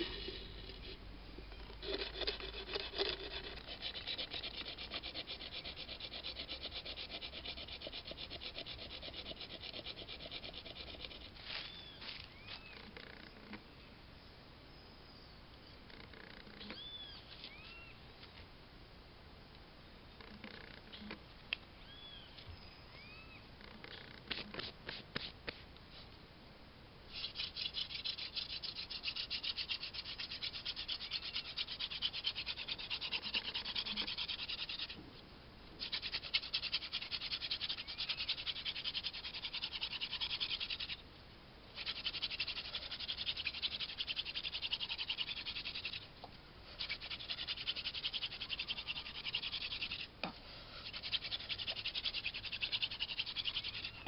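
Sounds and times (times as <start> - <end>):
wood grinding on wood: 0.0 - 12.2, 27.2 - 35.0, 50.8 - 54.0.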